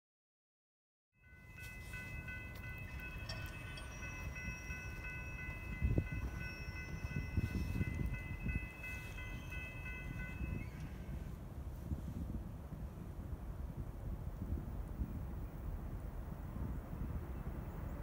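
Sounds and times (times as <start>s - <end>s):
steady high tones: 1.2s - 11.2s
train rumble: 1.2s - 18.0s.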